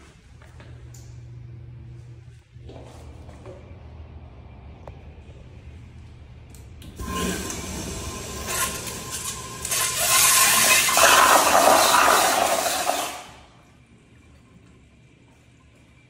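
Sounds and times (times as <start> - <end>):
toilet flushing: 7.0 - 13.6.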